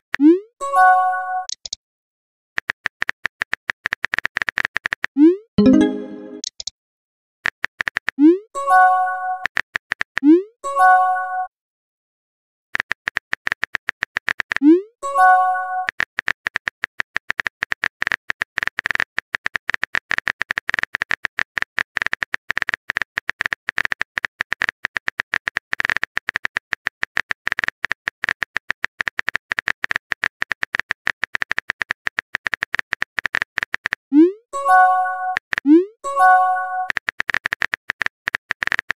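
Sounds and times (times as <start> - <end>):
keyboard typing clicks: 1.4 - 1.8, 5.6 - 6.7, 25.3 - 38.9.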